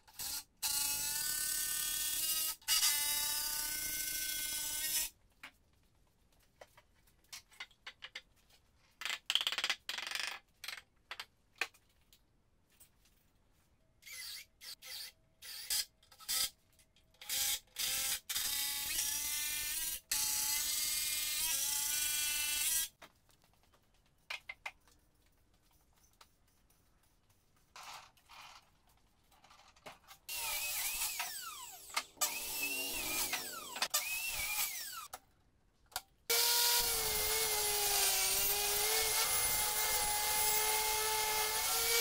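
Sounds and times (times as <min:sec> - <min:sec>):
power drill whine: 0:30.3 - 0:35.1.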